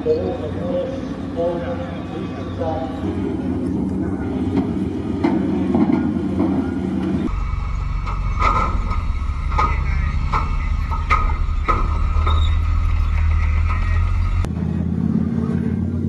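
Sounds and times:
diesel engine drone: 0:00.0 - 0:16.0
metal tracks clanking on deck plates: 0:04.4 - 0:14.5.

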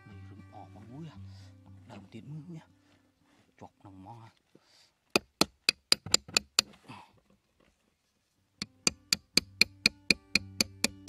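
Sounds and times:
hammer knocking nail into cardboard: 0:05.2 - 0:06.7.

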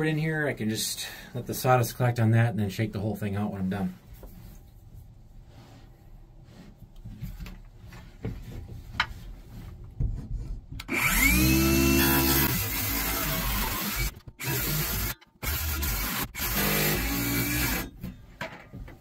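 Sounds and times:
rustling and small knocks: 0:04.0 - 0:10.9, 0:18.0 - 0:19.0
circular saw cutting board: 0:10.8 - 0:17.9.

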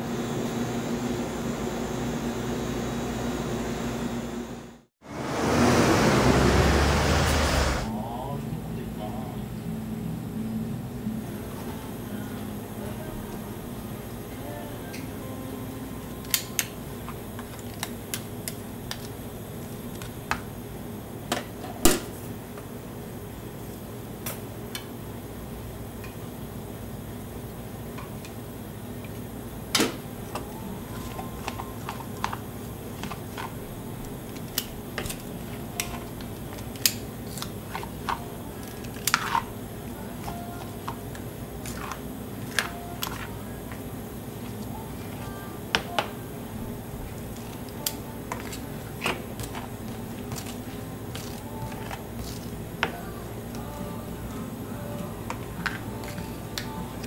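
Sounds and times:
steady hum: 0:00.0 - 0:57.0.

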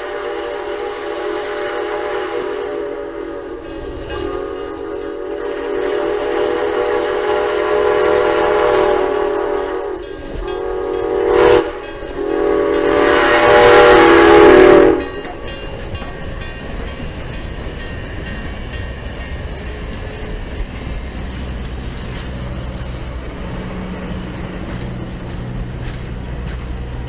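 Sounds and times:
steam whistle blasts: 0:00.0 - 0:15.2
locomotive running rumble: 0:00.0 - 0:27.0.

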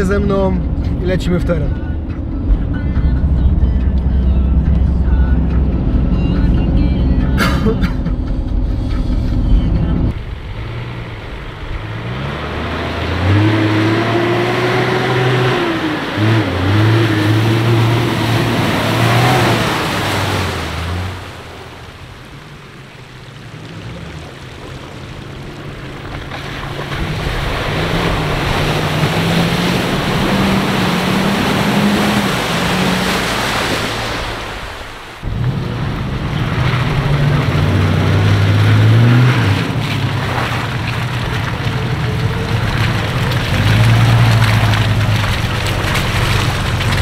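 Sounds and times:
car engine revving: 0:00.0 - 0:34.4, 0:35.2 - 0:47.0
road and wind noise: 0:00.0 - 0:47.0.

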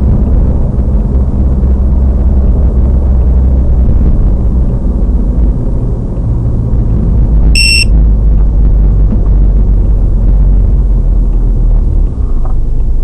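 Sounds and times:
car engine rumble inside cabin: 0:00.0 - 0:13.0
short high electronic beep: 0:07.6 - 0:07.9.

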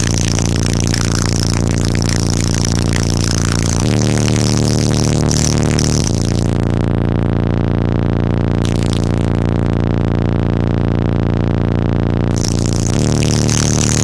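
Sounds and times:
deep bass note through subwoofers: 0:00.0 - 0:14.0.

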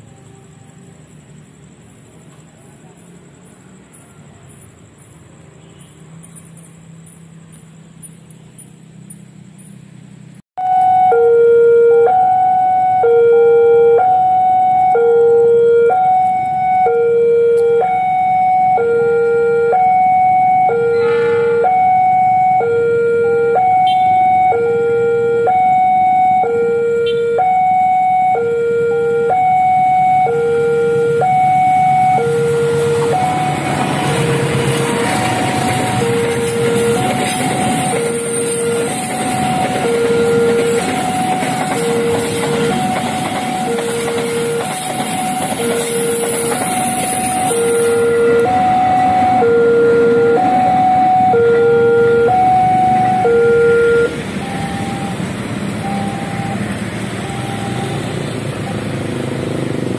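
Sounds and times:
two-tone crossing alarm: 0:10.6 - 0:59.2
passing freight train rumble: 0:17.9 - 0:23.2, 0:28.6 - 0:59.9
train horn blast: 0:20.8 - 0:21.8.

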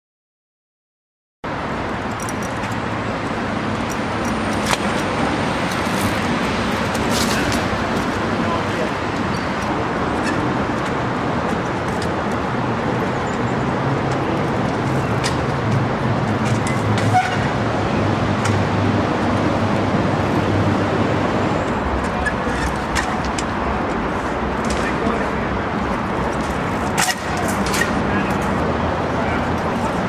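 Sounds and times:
traffic noise: 0:01.4 - 0:30.0.

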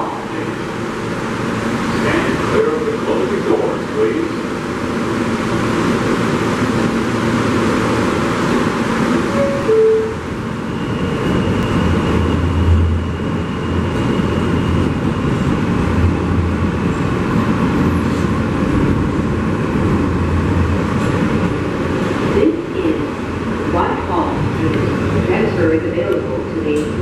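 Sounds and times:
subway wheels rumbling and rattling: 0:00.0 - 0:27.0
brief tone: 0:09.3 - 0:14.9.

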